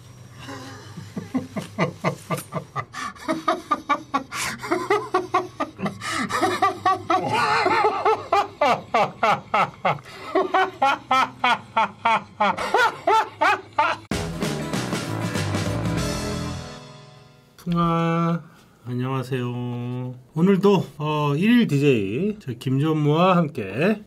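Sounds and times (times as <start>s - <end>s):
man laughing hard: 0.4s - 14.1s
music: 13.0s - 17.7s.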